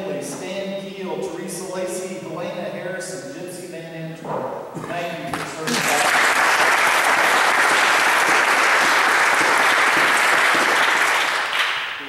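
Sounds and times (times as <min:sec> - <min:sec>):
congregation applauding: 0:05.5 - 0:12.0.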